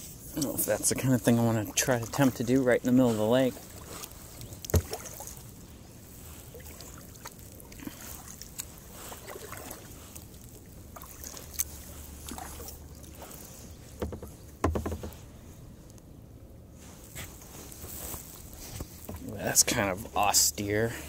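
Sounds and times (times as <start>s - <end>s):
paddle splashing: 0.0s - 15.8s
splashes and knocks: 0.5s - 5.5s, 6.5s - 15.3s.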